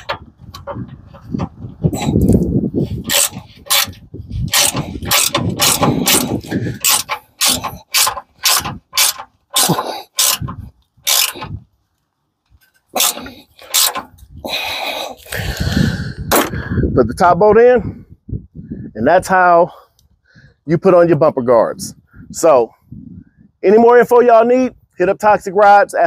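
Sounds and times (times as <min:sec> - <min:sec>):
ratchet clicking: 0:03.0 - 0:11.6, 0:13.0 - 0:14.2.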